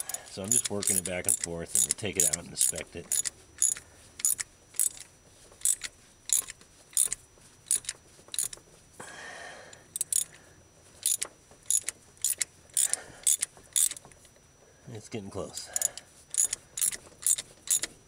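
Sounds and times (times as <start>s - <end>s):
ratchet clicking: 0.0s - 8.6s, 9.9s - 10.4s, 11.0s - 14.1s, 15.6s - 18.0s.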